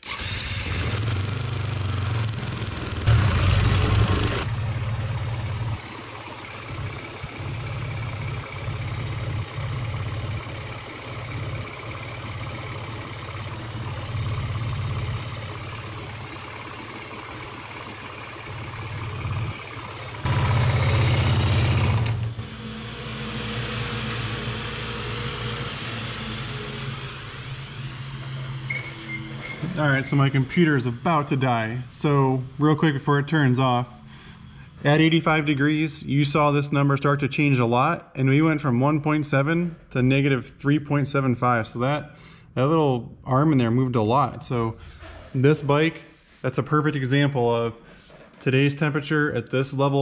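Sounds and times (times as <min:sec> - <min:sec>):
cooling fan blowing: 0:00.1 - 0:34.7
dirt bike engine idling: 0:00.7 - 0:34.8.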